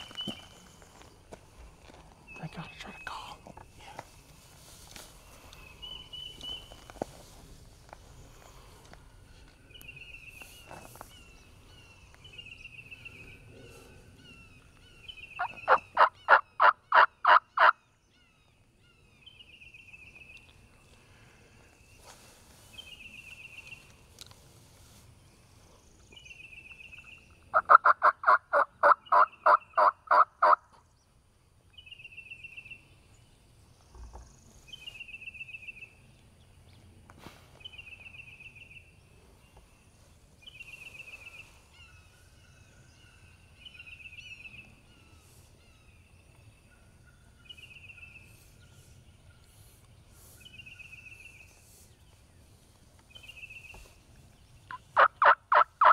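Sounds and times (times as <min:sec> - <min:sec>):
turkey yelps: 0:15.4 - 0:17.7, 0:27.6 - 0:30.6, 0:55.0 - 0:55.9.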